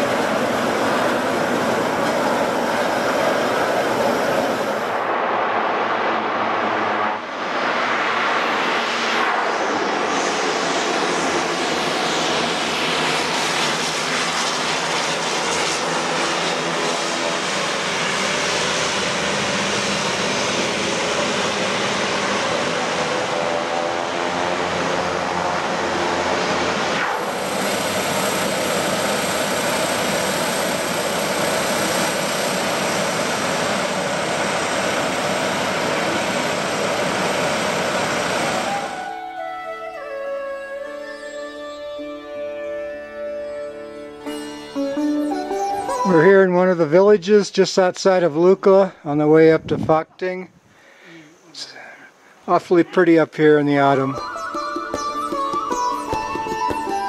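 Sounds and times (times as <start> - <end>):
turboprop engines and propellers: 0.0 - 41.4
steady high whine: 0.0 - 50.5.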